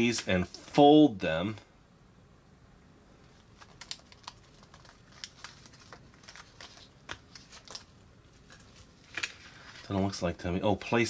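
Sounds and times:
paper cards clicking and crinkling: 3.3 - 10.1.

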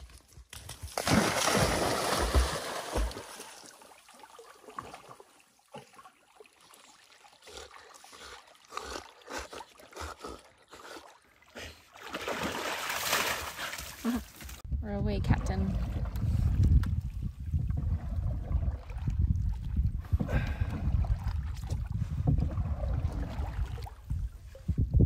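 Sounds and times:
dogs splashing in water: 0.9 - 14.3
rush of noise with low thumps: 14.7 - 25.0.

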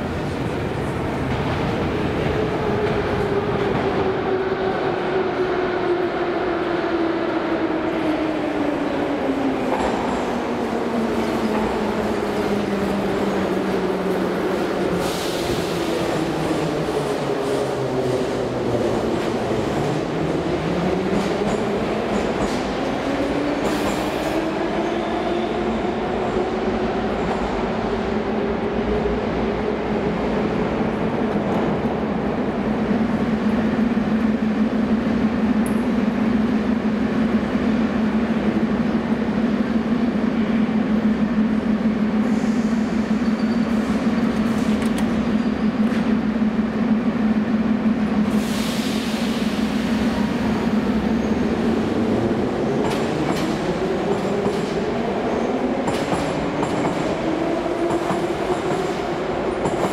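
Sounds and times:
metro train braking: 0.0 - 59.9.

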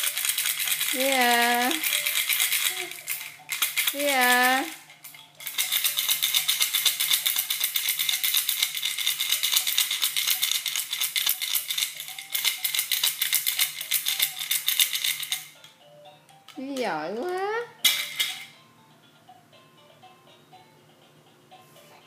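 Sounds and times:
baby rattle shaken fast: 0.0 - 15.6.

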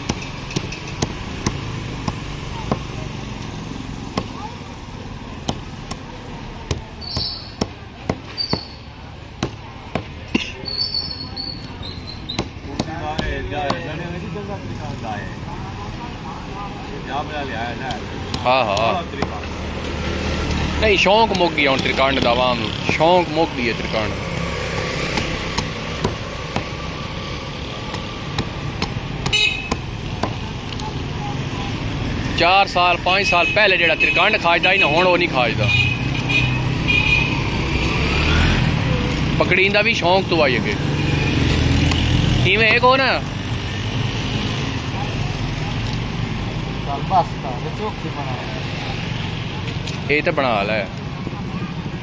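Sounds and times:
cleaver chopping fish on wood: 0.0 - 3.0, 4.0 - 4.4, 5.4 - 8.7, 9.3 - 10.6, 12.2 - 14.0, 17.8 - 23.3, 24.4 - 26.9, 27.8 - 30.5
street traffic noise: 0.0 - 52.0.

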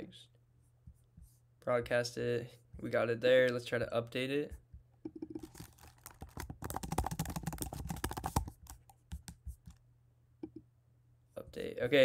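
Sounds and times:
computer keyboard typing: 5.1 - 9.8.

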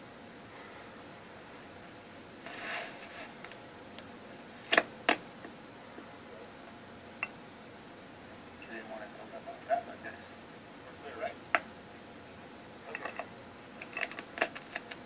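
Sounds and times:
short rustle: 1.0 - 3.6.

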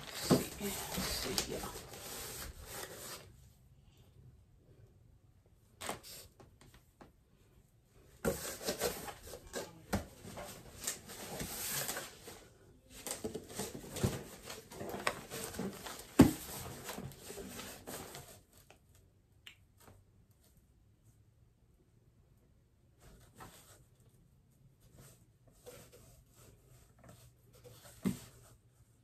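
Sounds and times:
plastic bag crinkling: 0.0 - 2.1
cardboard flaps scraping and knocking: 0.0 - 3.2, 13.1 - 18.4.

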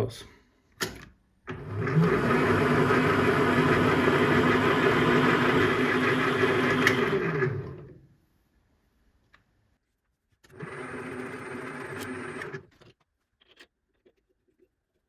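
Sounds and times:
benchtop lathe running: 1.5 - 7.9, 10.5 - 12.6.

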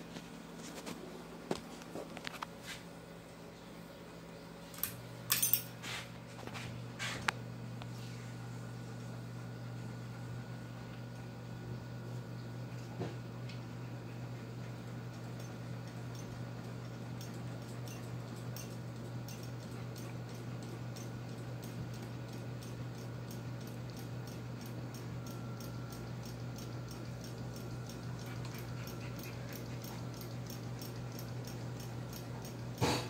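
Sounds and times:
ceiling fan humming: 0.0 - 33.0
faint regular ticking: 15.1 - 32.8.

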